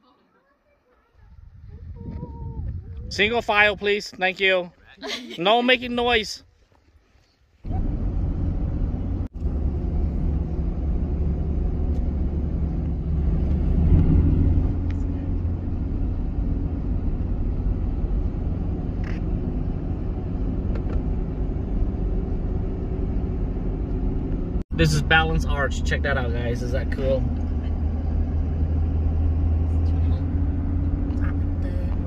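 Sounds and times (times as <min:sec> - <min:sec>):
car road noise rumble: 0:07.6 - 0:32.0.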